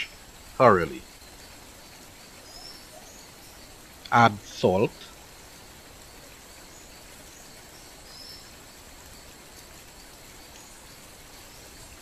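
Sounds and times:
faint even hiss: 0.0s - 12.0s
faint high chirp: 2.4s - 5.1s.

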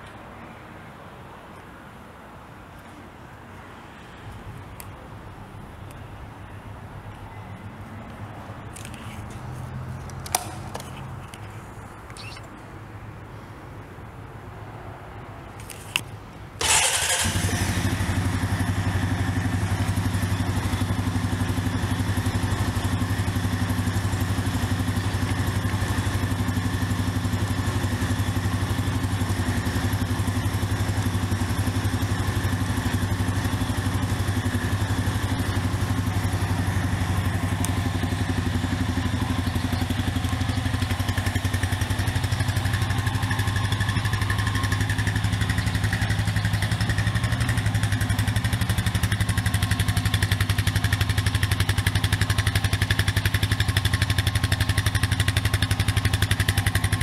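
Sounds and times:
engine cranking: 16.6s - 17.8s
engine idling: 16.6s - 57.0s.

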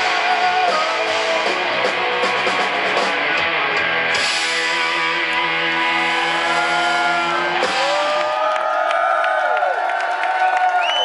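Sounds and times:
rock band with distorted guitars: 0.0s - 8.6s
crowd whooping and cheering: 4.7s - 11.0s.

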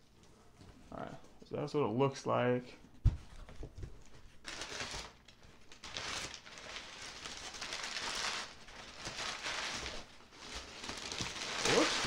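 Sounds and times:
packing paper rustling: 3.3s - 12.0s.

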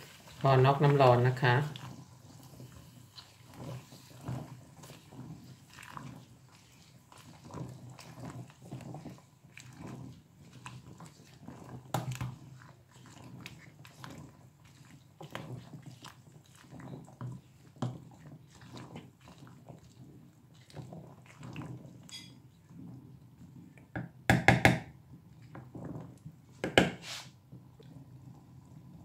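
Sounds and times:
wooden spoon knocking in pot: 23.9s - 25.0s, 26.6s - 27.0s.

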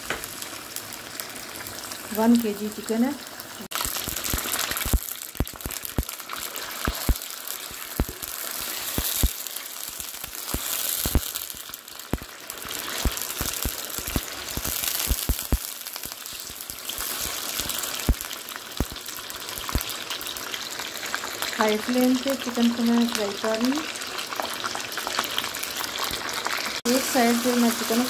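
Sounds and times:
chicken frying in hot oil: 0.0s - 28.0s
oil popping and crackling: 0.0s - 28.0s.

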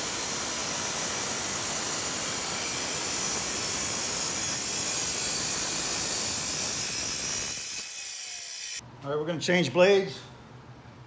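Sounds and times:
water spraying from hose: 0.0s - 7.8s
circular saw cutting concrete: 0.0s - 8.8s.

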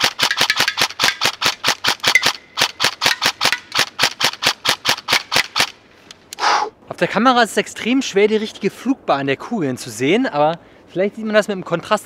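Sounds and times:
airsoft rifle shots: 0.0s - 5.8s.

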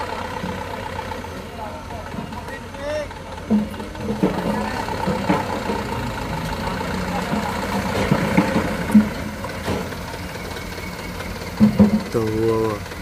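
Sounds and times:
truck diesel engine running: 0.0s - 13.0s.

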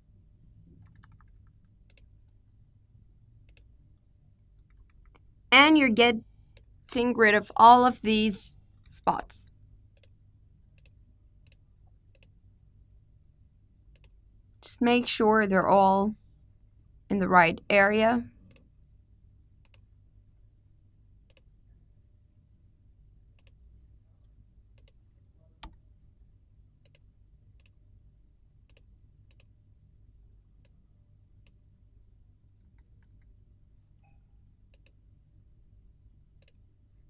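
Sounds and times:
low steady hum: 0.0s - 37.0s
computer mouse clicks: 0.8s - 2.4s, 3.4s - 3.7s, 4.6s - 5.3s, 10.8s - 12.3s, 13.9s - 14.2s, 19.6s - 19.9s, 21.3s - 21.5s, 23.4s - 23.6s, 24.8s - 25.0s, 26.8s - 27.8s, 28.6s - 29.5s, 34.7s - 35.0s, 36.4s - 36.6s.

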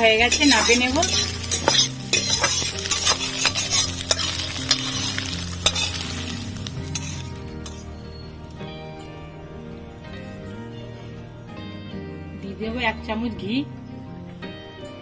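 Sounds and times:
light sizzle: 0.0s - 10.8s
spatula scraping a metal pan: 0.1s - 8.0s.

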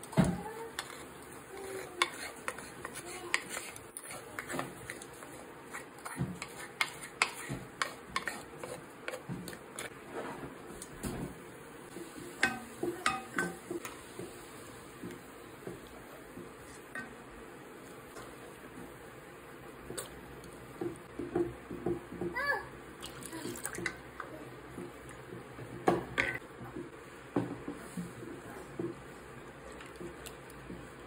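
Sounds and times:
utensil clinking in a metal pot: 12.4s - 14.0s.

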